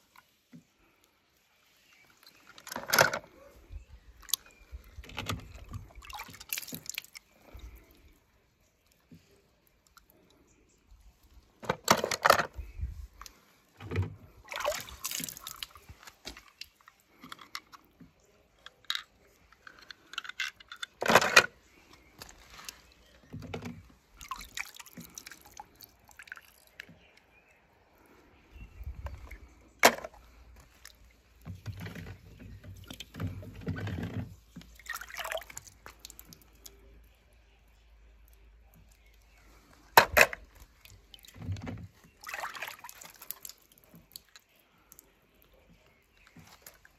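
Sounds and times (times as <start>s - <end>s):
water splashing and dripping: 4.2s - 11.6s, 14.2s - 17.3s, 23.8s - 27.3s, 29.0s - 37.1s, 38.2s - 46.9s
toy cars clicking and knocking: 18.6s - 21.5s.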